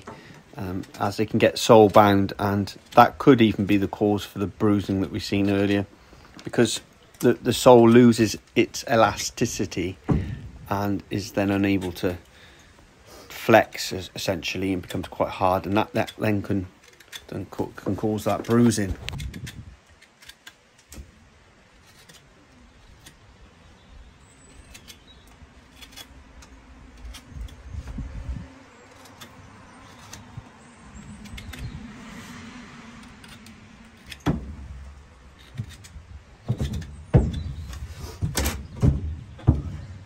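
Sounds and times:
hoof knife scraping: 0:21.7 - 0:23.3, 0:24.2 - 0:38.4
knocks and clatter: 0:34.0 - 0:40.0.

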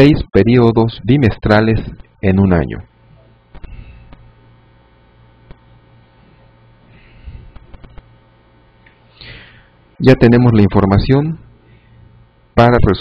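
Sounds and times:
electrical mains hum: 0:00.0 - 0:13.0
keyboard and mouse clicks: 0:07.5 - 0:08.0.

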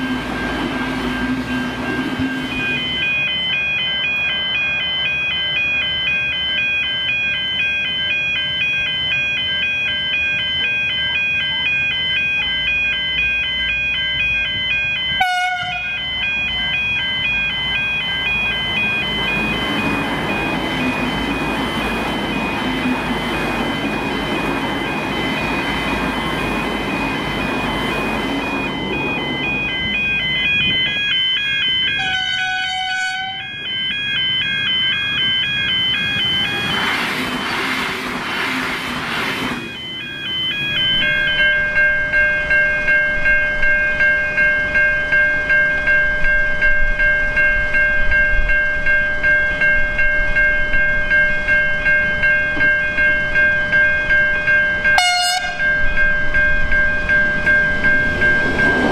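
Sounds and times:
train rushing past: 0:00.0 - 0:09.4, 0:13.2 - 0:58.9
level crossing bells ringing: 0:00.0 - 0:58.9
train horn: 0:15.2 - 0:15.9, 0:32.0 - 0:33.5, 0:55.0 - 0:55.6.

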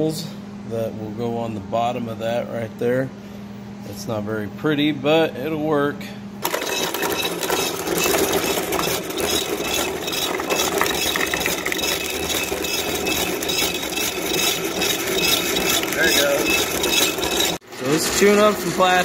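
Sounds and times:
plastic crackling and rattling: 0:06.4 - 0:13.9
electric motor hum: 0:06.4 - 0:19.0.

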